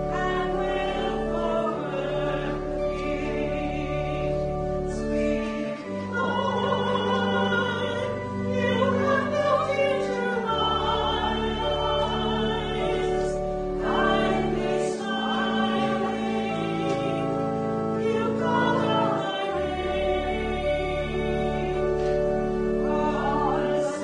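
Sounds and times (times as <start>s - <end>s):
people singing: 0.0s - 17.4s, 18.0s - 22.2s, 22.9s - 24.0s
instrumental accompaniment: 0.0s - 24.0s.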